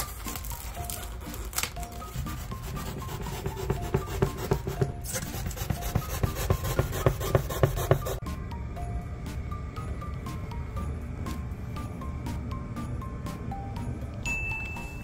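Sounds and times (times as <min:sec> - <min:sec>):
knife sawing through styrofoam: 0:00.8 - 0:08.2.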